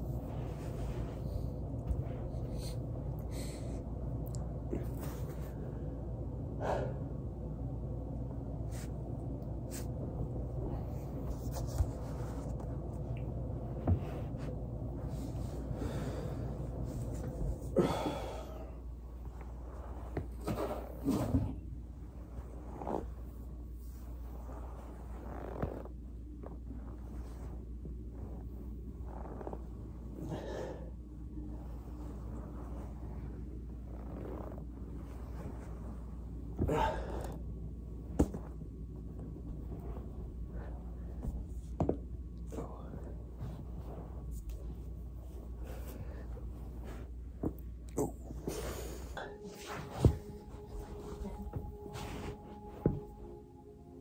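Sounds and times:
body rolling on foam roller: 0.0s - 3.3s, 9.6s - 54.0s
person breathing: 0.1s - 4.1s, 4.7s - 7.3s, 14.4s - 21.2s, 30.1s - 34.5s, 36.6s - 37.5s, 45.4s - 47.2s.

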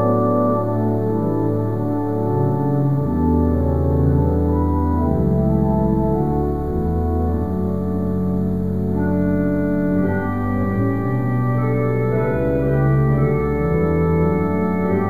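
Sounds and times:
organ playing sustained chords: 0.0s - 15.0s.

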